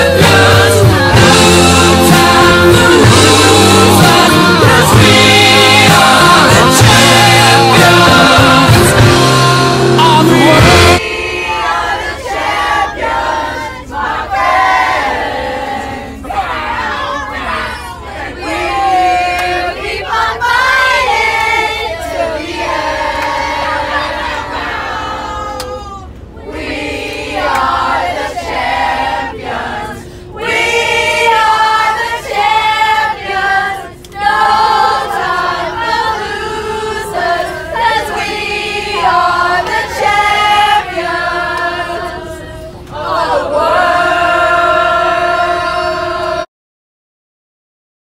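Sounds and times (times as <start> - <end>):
choir singing a cappella: 0.0 - 46.5
singers breathing: 30.0 - 30.4.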